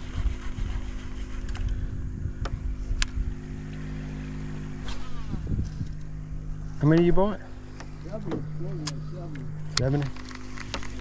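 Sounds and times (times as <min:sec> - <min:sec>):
boat motor humming: 0:00.0 - 0:11.0
wind and water rumble: 0:00.0 - 0:11.0.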